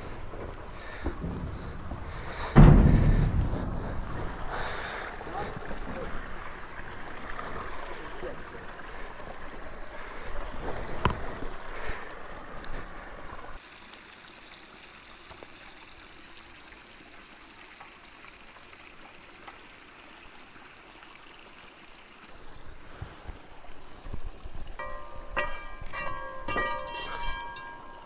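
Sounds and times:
low knocks: 0:00.9 - 0:04.4.

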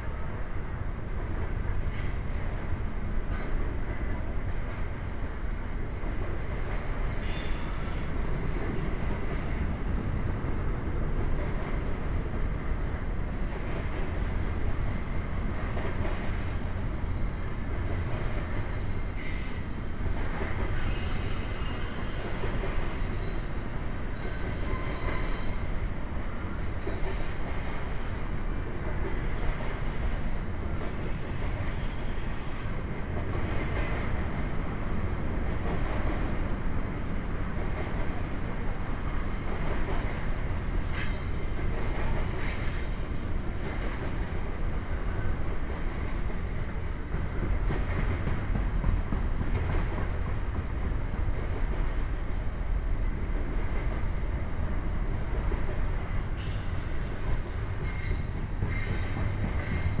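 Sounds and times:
train wheels rumbling on rails: 0:00.0 - 1:00.0
high wheel squeal: 0:56.4 - 1:00.0.

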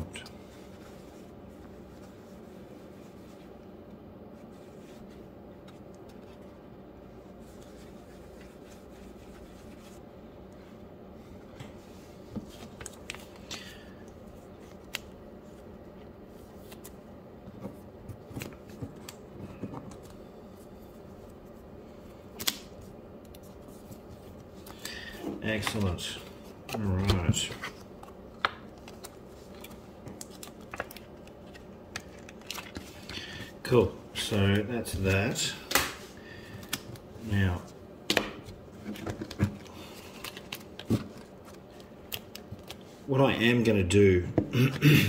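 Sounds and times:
low room hum: 0:00.0 - 0:45.0
plastic card holders rustling: 0:22.3 - 0:33.5.

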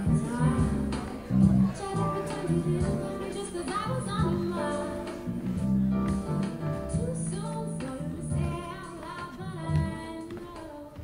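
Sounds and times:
woman singing: 0:00.0 - 0:05.3, 0:06.8 - 0:11.0
plucked guitar: 0:00.0 - 0:10.1.

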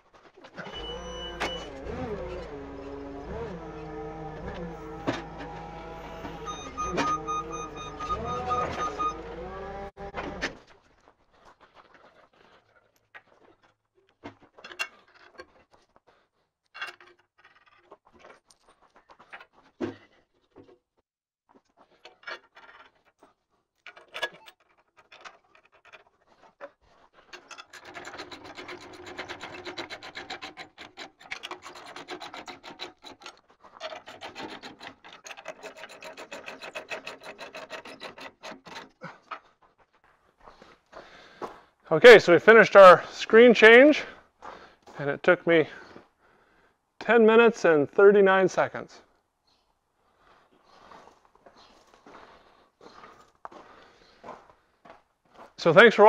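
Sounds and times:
metallic clanks and knocks: 0:27.4 - 0:39.0.

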